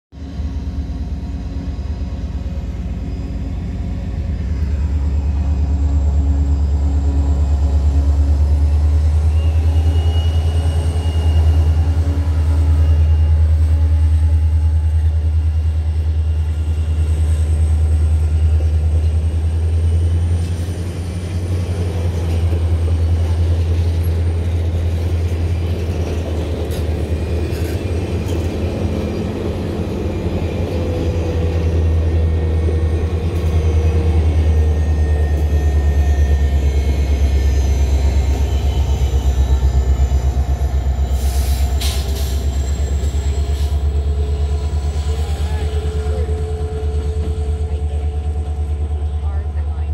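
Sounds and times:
diesel locomotive engine rumble: 0:00.1 - 0:49.9
train wheels clattering on rails: 0:16.5 - 0:49.4.

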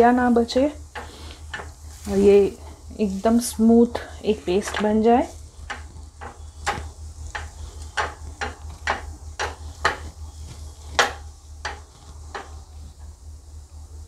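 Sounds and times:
potato masher tapping on pan: 0:04.6 - 0:05.1, 0:05.7 - 0:12.6.

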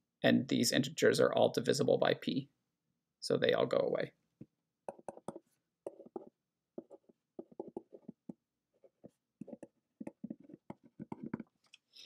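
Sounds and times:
pen scratching on paper: 0:04.9 - 0:11.6.

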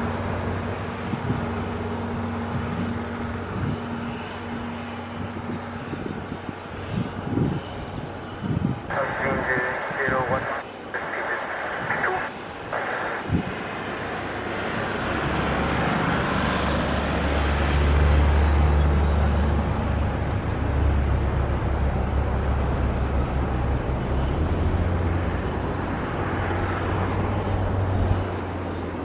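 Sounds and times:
jet engine rumble: 0:00.0 - 0:17.8.

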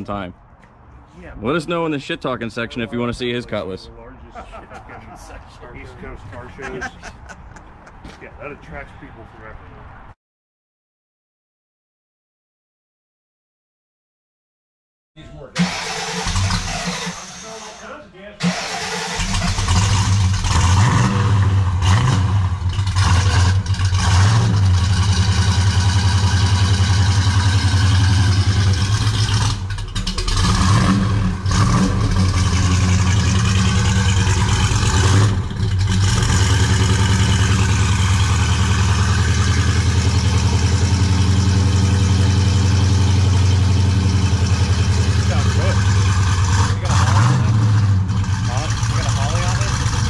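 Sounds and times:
car engine idling: 0:15.5 - 0:20.6, 0:21.4 - 0:50.0.

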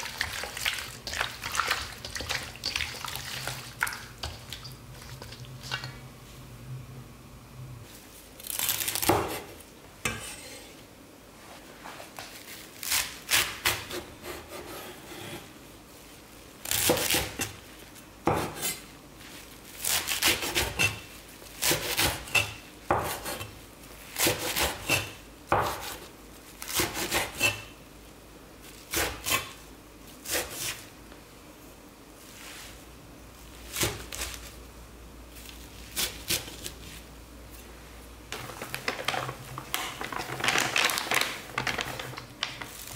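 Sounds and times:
knife chopping on wooden board: 0:24.2 - 0:26.0.

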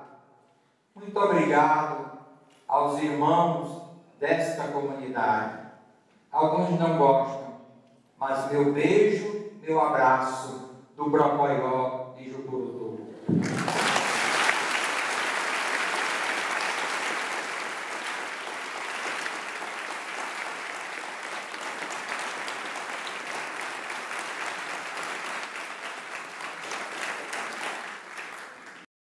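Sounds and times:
congregation applauding: 0:13.3 - 0:28.9.

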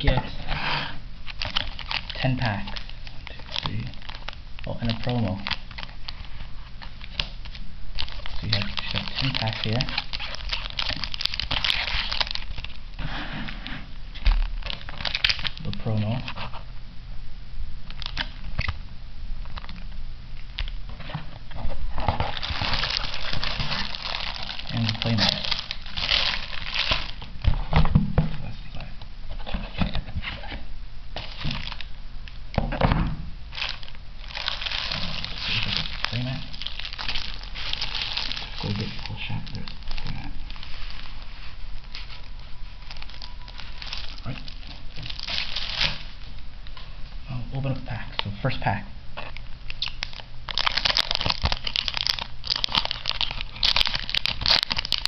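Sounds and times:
plastic wrapping crinkling: 0:01.2 - 0:13.1, 0:14.1 - 0:16.6, 0:17.8 - 0:18.8, 0:19.4 - 0:19.8, 0:21.6 - 0:27.5, 0:31.2 - 0:32.4, 0:33.5 - 0:47.0, 0:49.2 - 0:55.0.

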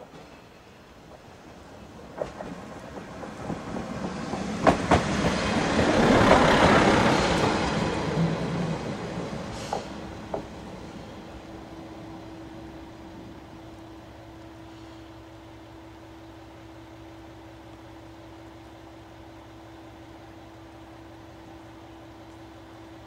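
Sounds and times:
diesel railcar rumbling past: 0:00.0 - 0:23.0
wheels clacking over rail joints: 0:01.0 - 0:10.8.

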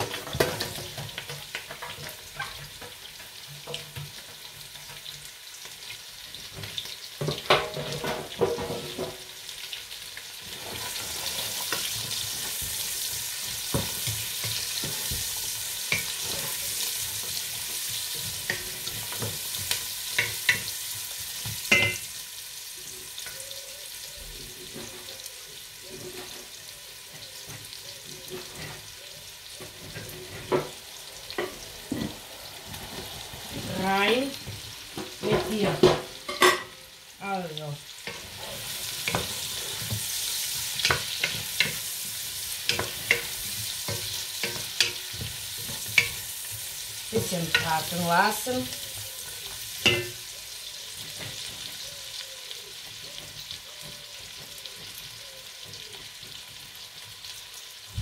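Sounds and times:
vegetables sizzling in a pot: 0:00.0 - 0:58.0
spoon and tray knocking on pot: 0:21.7 - 0:22.0, 0:49.8 - 0:50.2.

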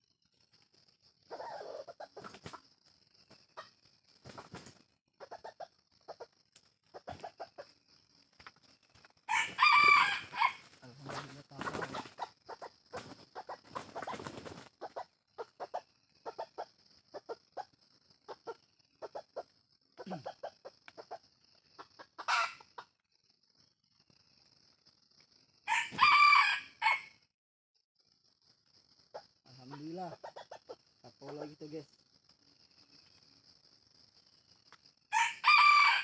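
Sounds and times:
roosters clucking: 0:01.2 - 0:23.0, 0:29.1 - 0:31.8
rooster loud call: 0:09.3 - 0:10.6, 0:25.7 - 0:27.1, 0:35.1 - 0:36.0.

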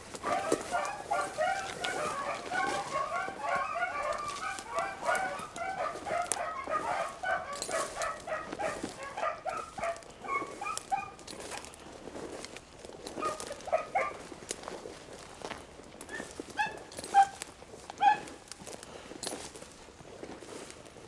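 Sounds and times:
hounds baying: 0:00.0 - 0:11.8, 0:13.0 - 0:14.7, 0:16.0 - 0:18.8.

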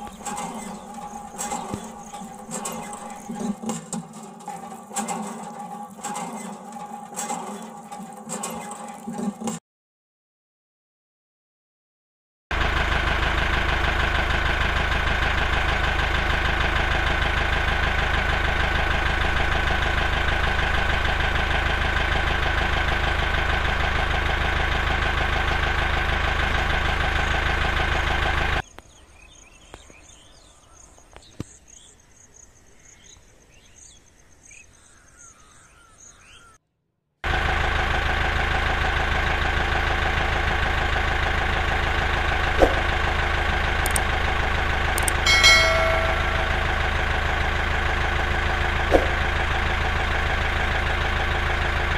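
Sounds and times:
birds chirping: 0:00.0 - 0:06.6, 0:28.6 - 0:36.6, 0:45.0 - 0:47.4
tractor engine running: 0:00.0 - 0:09.6, 0:12.5 - 0:30.3, 0:37.2 - 0:51.9.

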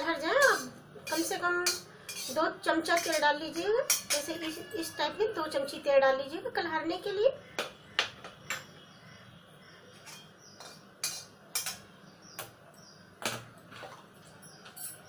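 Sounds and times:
steel utensils clinking: 0:00.0 - 0:05.1, 0:10.0 - 0:11.9, 0:14.4 - 0:15.0.

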